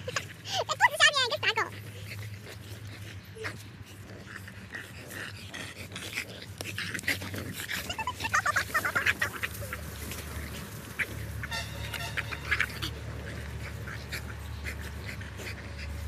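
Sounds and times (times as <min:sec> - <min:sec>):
dogs scuffling in sand: 0:00.0 - 0:16.0
small dogs panting: 0:00.0 - 0:16.0.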